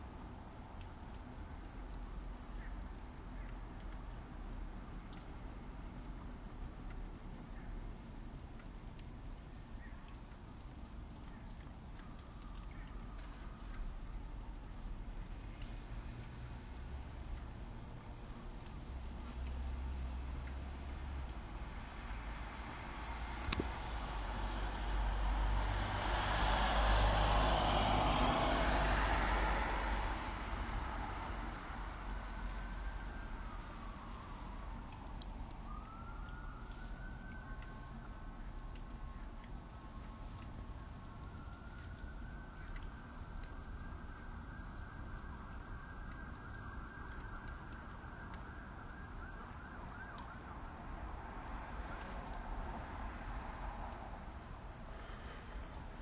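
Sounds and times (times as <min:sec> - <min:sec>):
street traffic: 0:00.0 - 0:56.0
faint emergency siren wavering: 0:09.8 - 0:56.0
vehicle passing by: 0:19.3 - 0:34.6.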